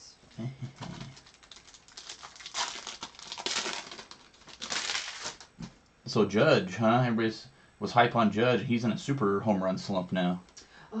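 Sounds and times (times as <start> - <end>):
plastic sleeves rustling: 0.3 - 5.8.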